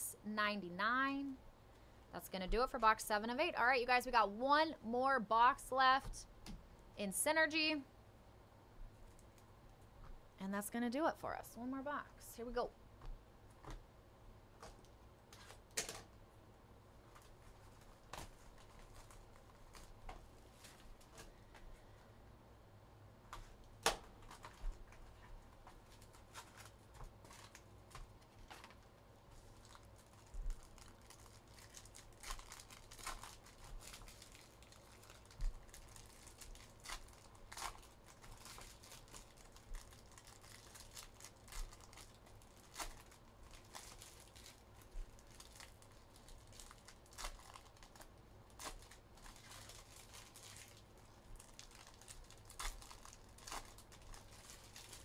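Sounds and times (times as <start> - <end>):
packaging torn and crinkled: 17.1 - 20.0, 23.8 - 25.1, 25.7 - 55.0.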